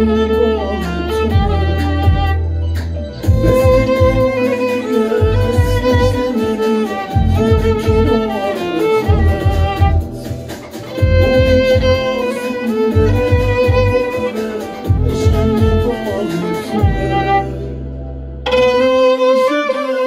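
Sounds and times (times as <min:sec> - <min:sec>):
low bass beat: 0:00.0 - 0:20.0
violin melody with vibrato: 0:00.0 - 0:20.0.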